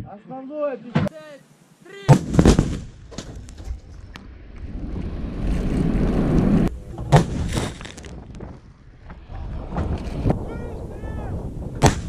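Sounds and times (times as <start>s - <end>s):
sharp gun firing bang: 2.1s - 3.2s, 7.1s - 7.6s, 11.8s - 12.0s
rumbling hissing gunshot aftermath: 2.1s - 3.3s, 11.6s - 12.0s.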